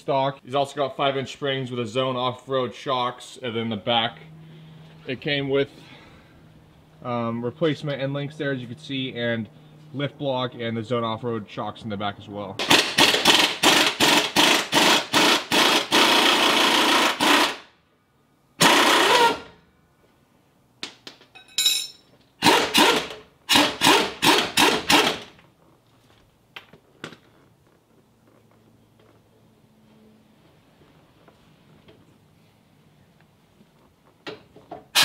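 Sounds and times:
wrench rattling bursts: 12.6 - 17.7, 18.6 - 19.6, 22.4 - 25.4.

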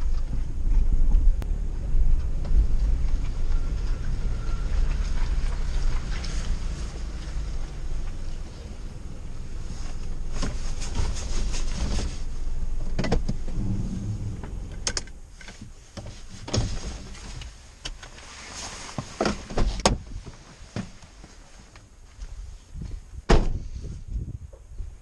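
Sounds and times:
car rolling low rumble: 0.0 - 25.0
clicks and knocks in car cabin: 12.8 - 13.6, 14.4 - 18.2, 19.0 - 21.0.

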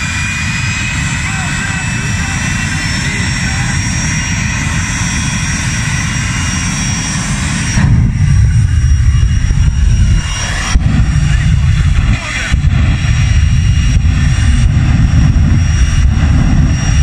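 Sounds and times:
turbine engine whining: 0.0 - 17.0.

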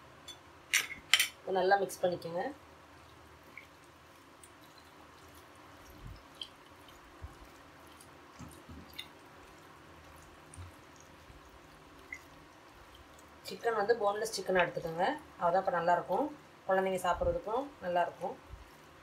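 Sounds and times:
wet squishing of raw chicken: 3.0 - 13.4.

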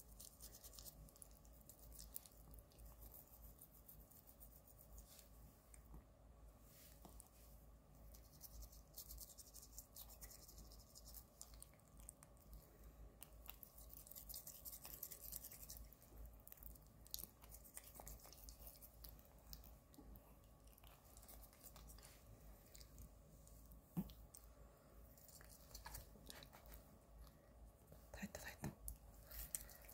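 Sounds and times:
toothbrush scrubbing teeth: 0.0 - 5.3, 8.1 - 12.3, 13.2 - 23.0, 25.2 - 26.9.

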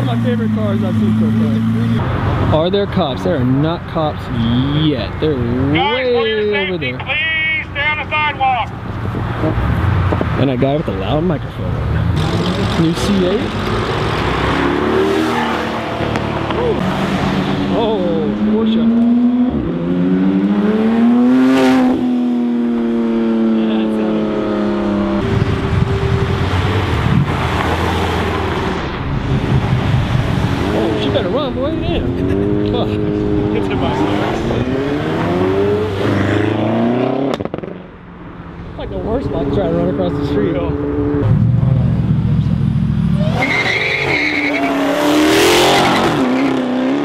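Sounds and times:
car engine accelerating hard: 11.1 - 37.9
tire squeal: 15.0 - 15.8, 43.1 - 46.6.

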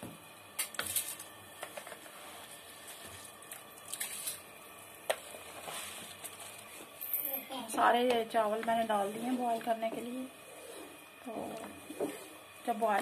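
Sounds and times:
wooden spoon scraping: 5.2 - 7.0, 8.4 - 13.0.

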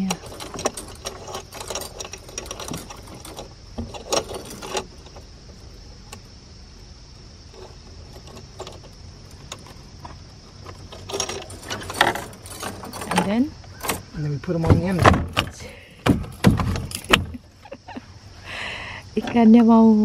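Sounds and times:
metal chain clinking: 0.0 - 5.3, 7.5 - 14.2, 15.6 - 17.8.

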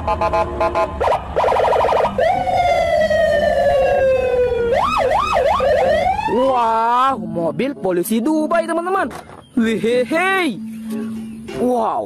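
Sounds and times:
police siren: 0.0 - 6.9.

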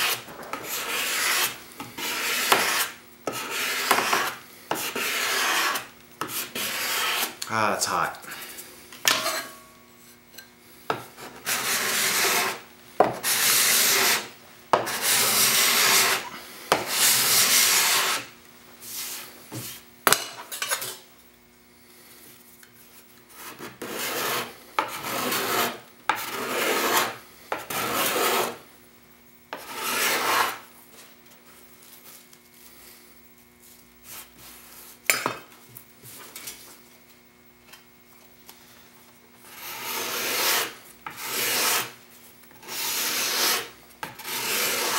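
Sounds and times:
putty knife scraping wood: 0.0 - 7.5, 11.1 - 18.3, 23.3 - 28.6, 29.5 - 30.6, 39.5 - 42.0, 42.6 - 44.9.

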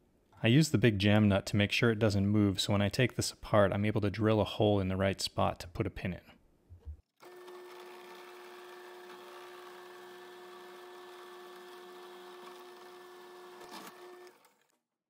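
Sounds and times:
drill bit drilling metal: 7.2 - 14.6
drill press humming: 7.2 - 14.8.

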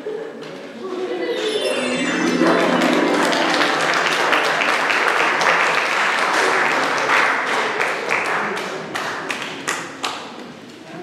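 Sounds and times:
audience applauding: 1.5 - 8.4.

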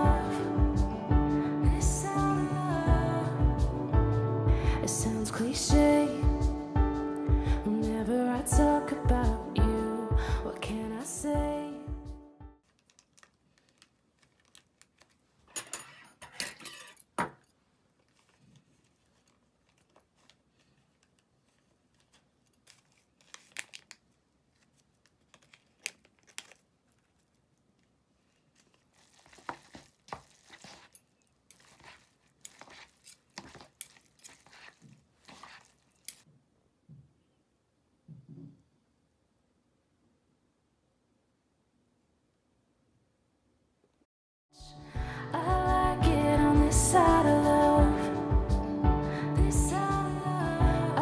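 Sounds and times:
plastic sachets crinkling and tearing: 12.6 - 15.4, 18.0 - 36.2
metal chopsticks scraping paper cup: 28.6 - 36.2.

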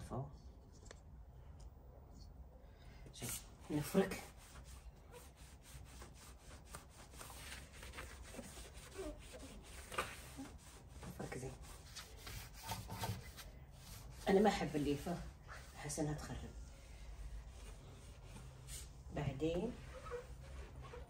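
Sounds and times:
brush scrubbing: 3.7 - 16.4, 19.7 - 21.0.

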